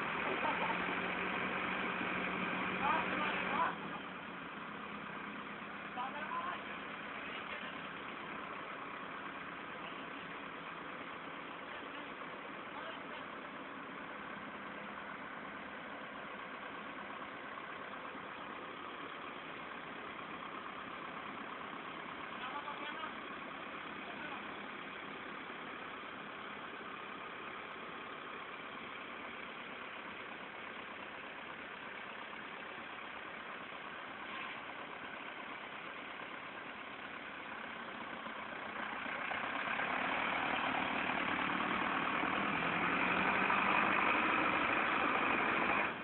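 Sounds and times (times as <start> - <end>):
tractor diesel engines under load: 0.0 - 46.0.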